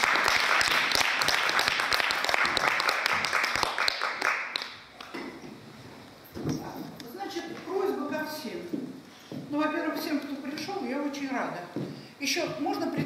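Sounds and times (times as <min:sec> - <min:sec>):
audience applauding: 0:00.0 - 0:04.9.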